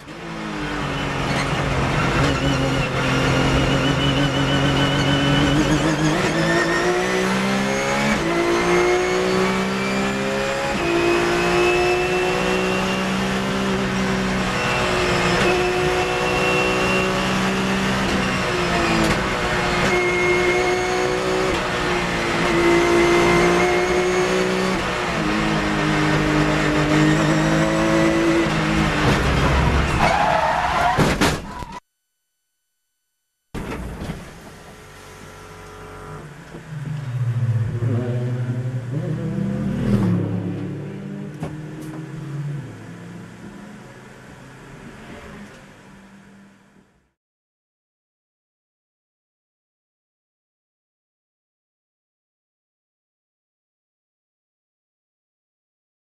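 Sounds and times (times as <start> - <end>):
race car engine accelerating: 0.1 - 30.5, 34.6 - 46.6.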